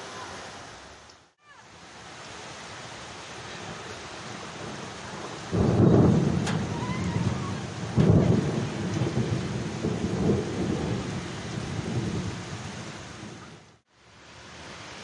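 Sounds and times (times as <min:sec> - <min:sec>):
heavy rain: 0:00.0 - 0:15.0
thunder rumbling: 0:03.6 - 0:13.8.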